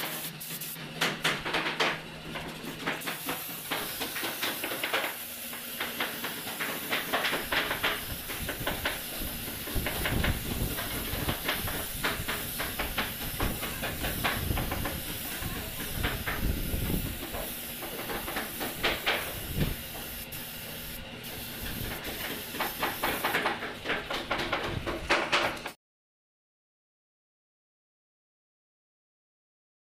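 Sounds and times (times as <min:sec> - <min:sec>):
spray gun hissing: 0:00.0 - 0:00.8, 0:02.6 - 0:23.7.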